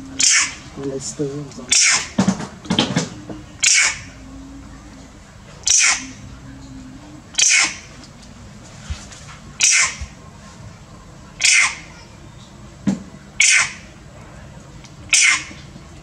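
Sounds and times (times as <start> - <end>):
monkey screaming: 0.2 - 0.8, 1.7 - 2.2, 3.6 - 4.2, 5.6 - 6.2, 7.4 - 7.9, 9.6 - 10.1, 11.4 - 12.0, 13.4 - 13.9, 15.1 - 15.6.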